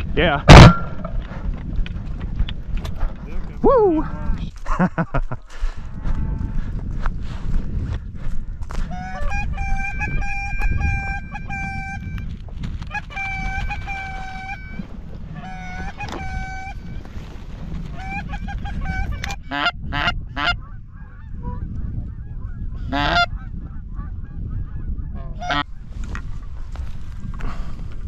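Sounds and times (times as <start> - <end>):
wind rumble: 0.0 - 28.0
geese honking: 8.9 - 12.2, 12.9 - 17.0, 18.0 - 21.6, 22.5 - 25.7.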